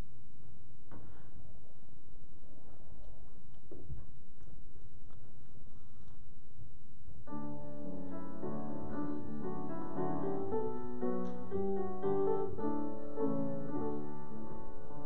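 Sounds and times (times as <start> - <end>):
piano playing slow chords: 7.3 - 15.0.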